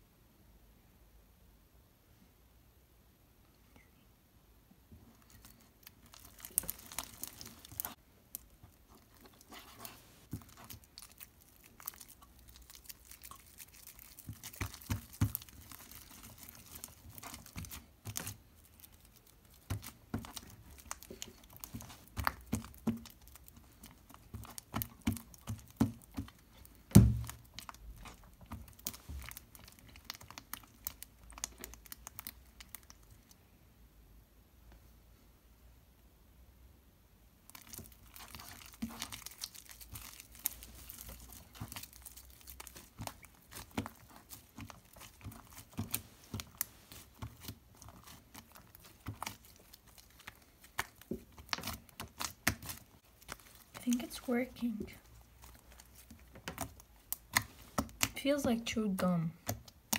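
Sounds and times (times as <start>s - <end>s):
slime squelching and crackling: 5.0s - 33.4s, 37.4s - 59.9s
thump: 26.9s - 27.3s.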